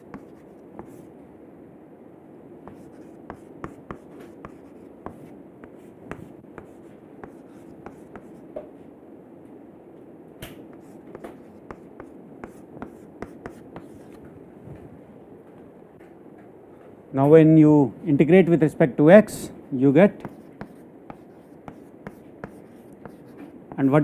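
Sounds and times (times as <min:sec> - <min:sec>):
chalk tapping and scratching: 0:00.0 - 0:01.1, 0:02.7 - 0:08.5, 0:10.7 - 0:14.2, 0:20.2 - 0:24.0
low background hum: 0:00.0 - 0:24.0.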